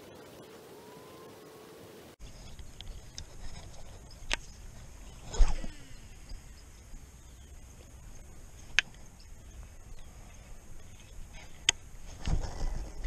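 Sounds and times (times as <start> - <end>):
low steady rumble: 2.2 - 13.0.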